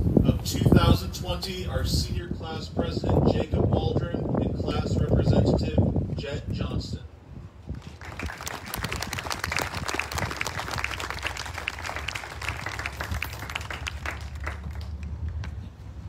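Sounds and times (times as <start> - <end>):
low steady rumble: 0.0 - 16.0
audience applauding: 7.8 - 15.4.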